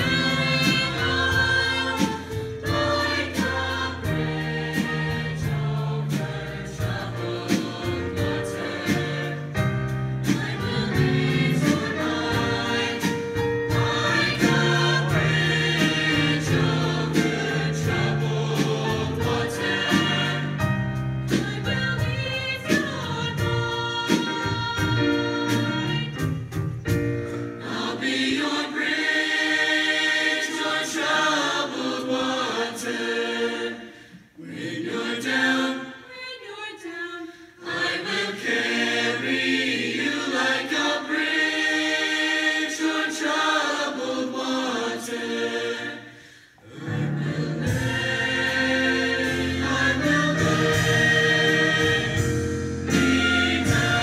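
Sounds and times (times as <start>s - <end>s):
musical accompaniment: 0.0s - 33.9s, 46.7s - 54.0s
choir singing in harmony: 0.0s - 54.0s.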